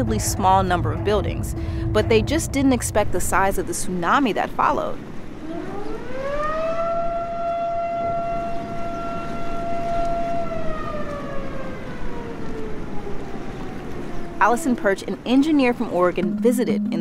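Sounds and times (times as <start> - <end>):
siren wailing: 5.3 - 14.8
rushing floodwater: 8.1 - 16.2.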